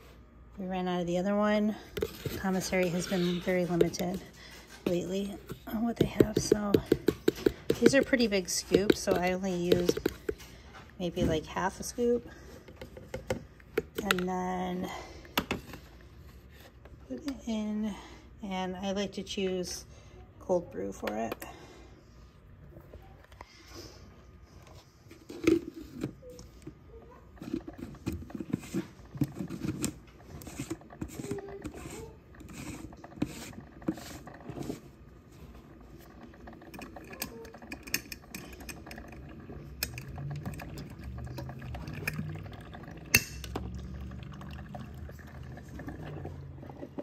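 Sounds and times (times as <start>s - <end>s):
low machine hum: 0.0s - 47.0s
coffee spurting and trickling: 27.1s - 47.0s.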